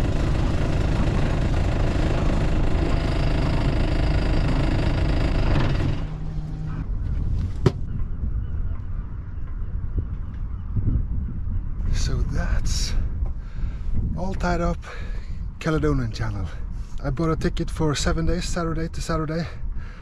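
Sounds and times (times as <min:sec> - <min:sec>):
boat engine running: 0:00.0 - 0:08.1.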